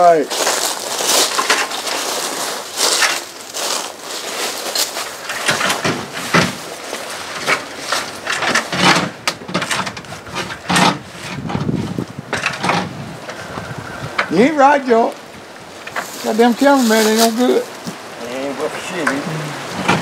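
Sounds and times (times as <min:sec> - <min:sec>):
dry leaves crunching underfoot: 0:00.0 - 0:08.8, 0:15.6 - 0:18.1
stepladder knocks and rustles: 0:01.1 - 0:03.4, 0:04.8 - 0:13.4, 0:19.0 - 0:20.0.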